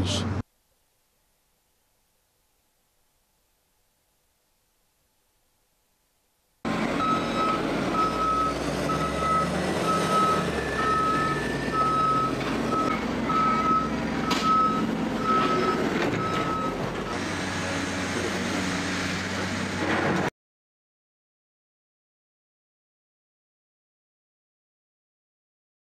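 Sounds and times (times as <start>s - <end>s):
machine engine running: 6.7s - 20.3s
reversing alarm beeping: 7.0s - 17.3s.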